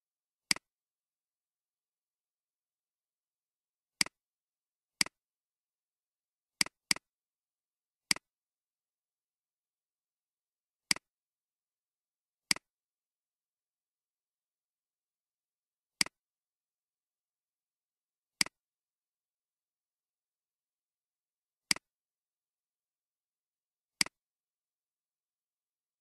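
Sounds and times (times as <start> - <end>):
computer mouse clicks: 24.0 - 24.2.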